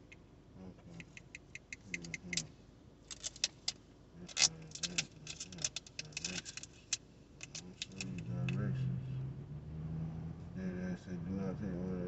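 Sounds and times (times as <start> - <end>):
small hard objects clicking and rattling: 3.1 - 8.2.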